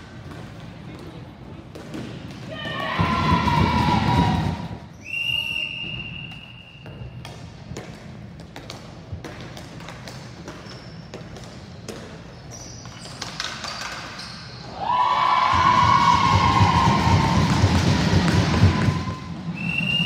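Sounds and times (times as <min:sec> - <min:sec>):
referee whistle: 0:04.9 - 0:07.2, 0:19.0 - 0:20.0.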